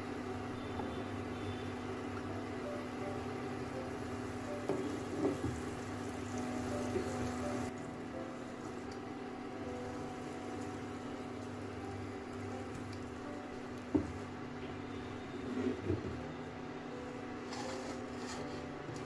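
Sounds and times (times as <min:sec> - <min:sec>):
cooktop humming with cooling fan: 0:00.0 - 0:19.0.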